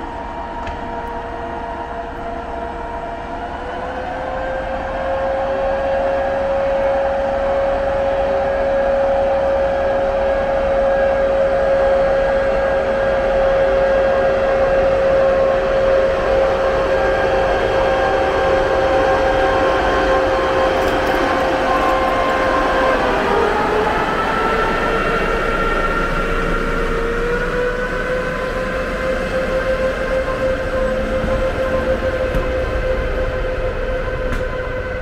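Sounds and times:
electric locomotive whine: 0.0 - 35.0.

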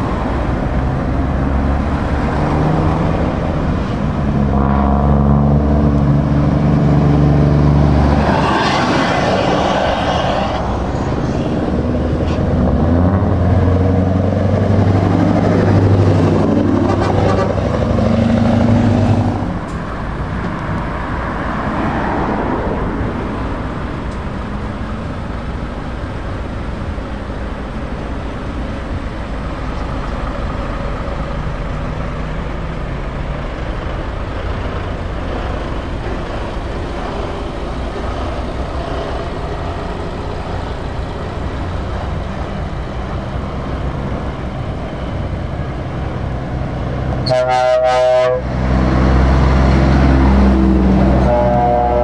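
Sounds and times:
large vehicle passing: 0.0 - 27.1, 28.2 - 52.0
truck air horn blast: 4.4 - 5.8, 16.8 - 17.6, 47.2 - 48.5, 51.0 - 52.0
truck engine running: 10.8 - 20.8, 23.4 - 47.3.

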